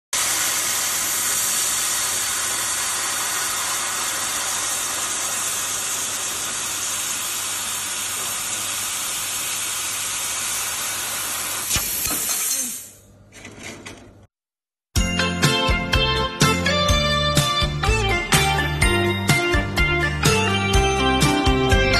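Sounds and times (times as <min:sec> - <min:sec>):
laser cutter gas hissing: 0:00.1 - 0:13.0.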